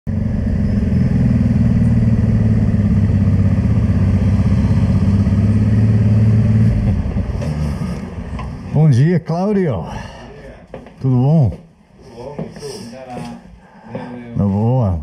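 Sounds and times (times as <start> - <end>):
motorcycle engine running: 0.1 - 8.6.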